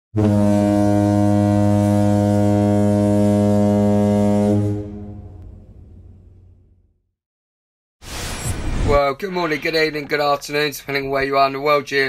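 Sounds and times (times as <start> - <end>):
foghorn deep blast: 0.2 - 6.2.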